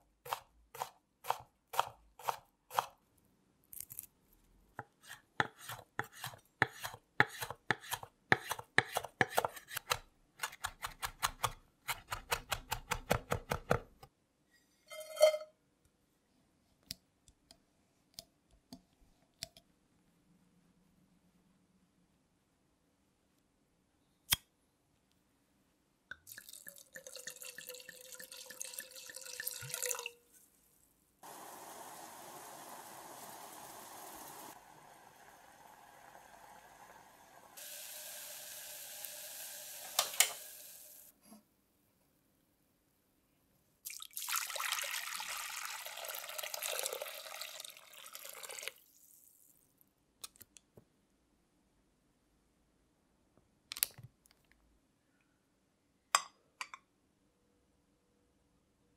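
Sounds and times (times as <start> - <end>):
wine pouring into metal pan: 26.3 - 30.1, 43.9 - 49.6
wine boiling and hissing: 31.2 - 41.1.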